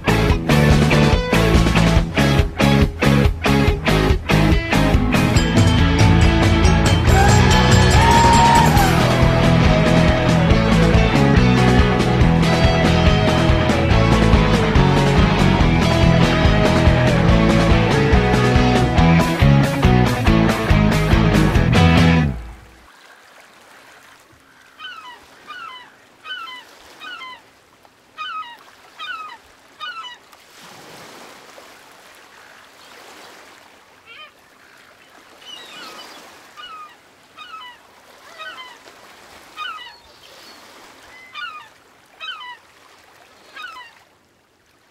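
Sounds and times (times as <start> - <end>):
gulls calling: 2.2 - 22.2, 22.9 - 30.3, 34.0 - 44.1
surf breaking: 6.4 - 22.6.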